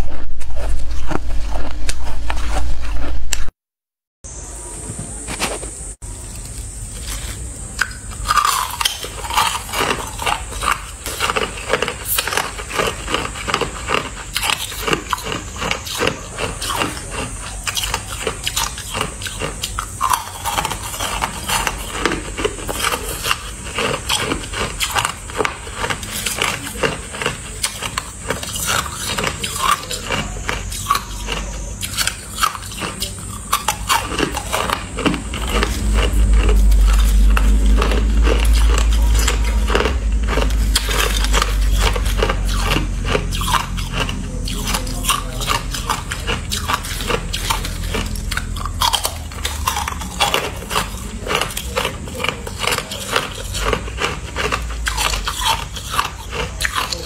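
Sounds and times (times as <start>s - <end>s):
shaved ice crunching: 5.3s - 57.0s
low rumble: 34.4s - 52.6s.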